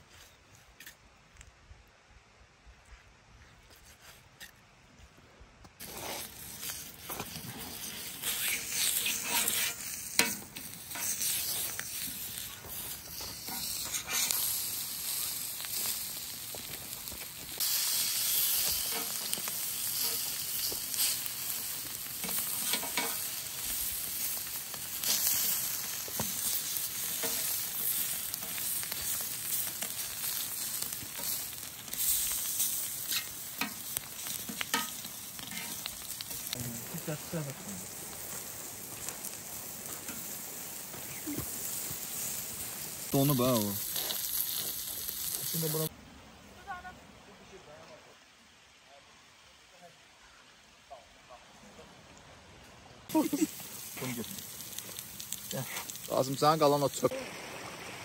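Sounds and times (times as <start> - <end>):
stirring scrapes and knocks: 5.8 - 14.4, 22.2 - 23.2, 26.1 - 28.6, 33.1 - 35.9
liver sizzling in fat: 5.8 - 45.9, 53.1 - 58.0.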